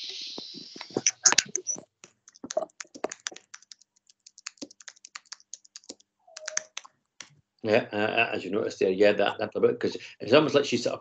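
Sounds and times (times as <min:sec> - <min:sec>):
computer keyboard typing: 0:01.0 - 0:06.9.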